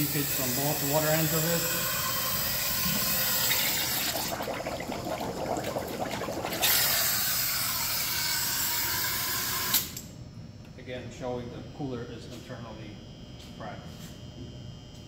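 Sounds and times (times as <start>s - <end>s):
air bubbling in water: 0.8s - 8.2s.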